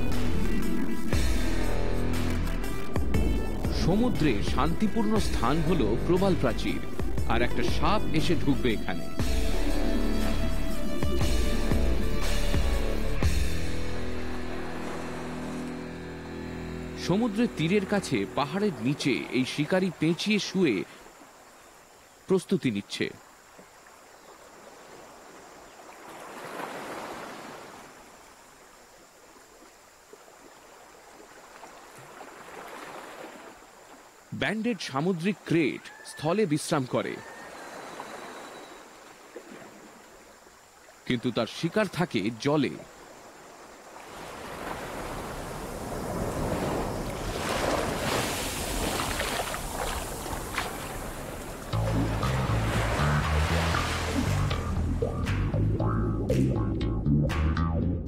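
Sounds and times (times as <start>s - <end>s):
waves on a pebbly shore: 24.2s - 29.2s, 30.4s - 34.3s, 42.9s - 54.3s
short splashes in the wash: 24.4s - 28.1s, 29.5s - 34.0s, 43.9s - 54.6s.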